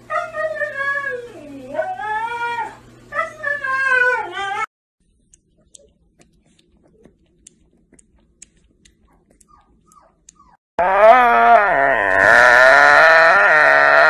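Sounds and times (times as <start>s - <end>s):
puppy lapping milk: 5.6s - 10.5s
dog whine-howling: 10.4s - 14.0s.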